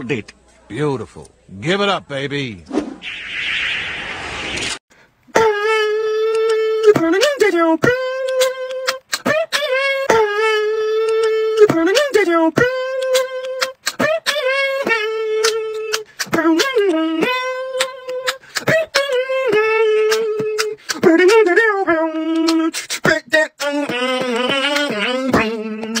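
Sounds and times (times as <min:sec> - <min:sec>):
wordless vocal riff: 0:05.3 - 0:26.0
beatbox percussive clicks: 0:06.1 - 0:21.6, 0:22.3 - 0:26.0.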